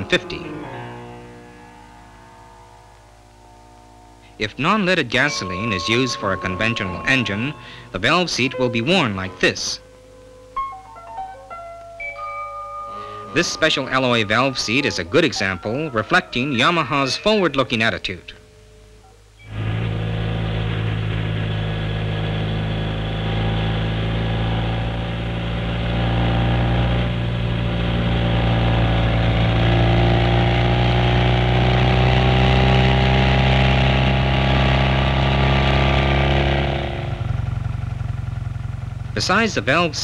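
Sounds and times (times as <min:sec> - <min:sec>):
motorcycle engine running: 0:19.5 - 0:40.0.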